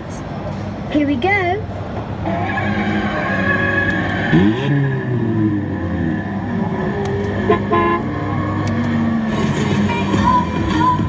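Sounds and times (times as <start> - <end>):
recorded engine revving: 2.2 - 11.0
car horn toot: 7.4 - 8.1.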